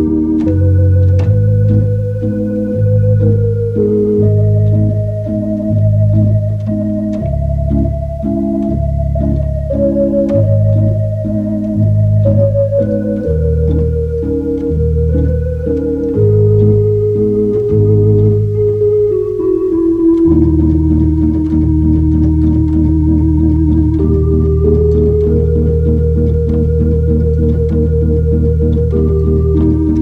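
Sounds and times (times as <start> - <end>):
slow organ music: 0.0 - 30.0.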